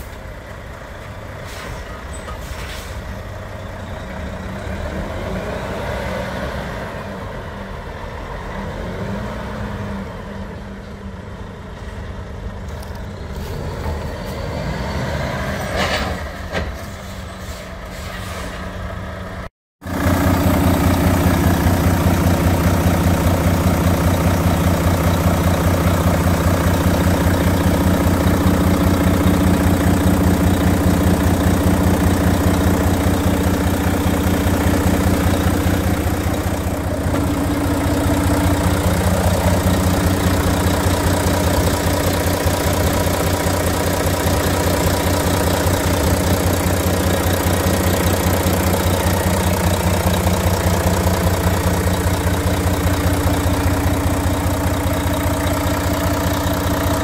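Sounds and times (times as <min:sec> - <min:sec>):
diesel engine idling: 0:00.0 - 0:05.6, 0:18.7 - 0:57.0.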